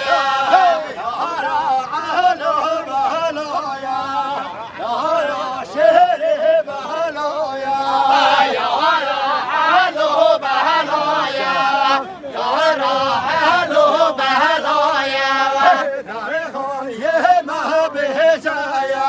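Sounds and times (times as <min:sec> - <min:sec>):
men singing together: 0:00.0 - 0:19.0.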